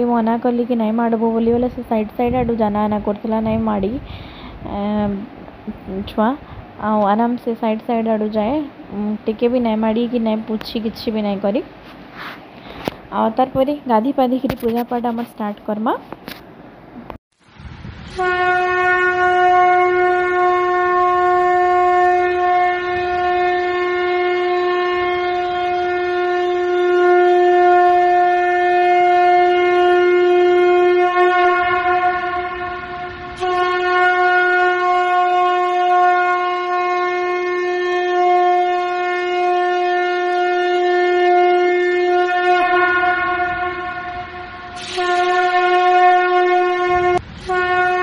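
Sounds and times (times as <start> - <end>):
conch shell blasts: 18.1 - 48.0.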